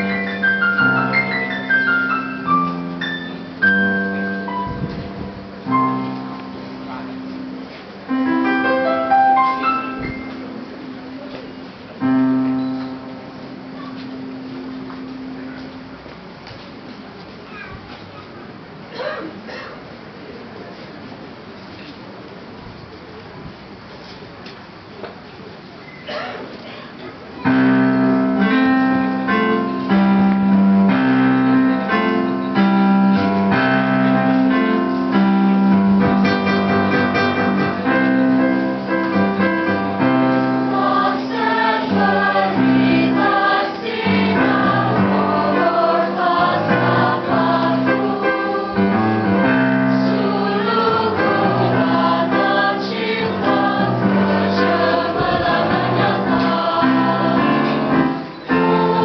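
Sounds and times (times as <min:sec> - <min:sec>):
instrumental accompaniment: 0:00.0 - 0:16.3, 0:27.4 - 0:59.0
choir singing in parts: 0:33.3 - 0:59.0.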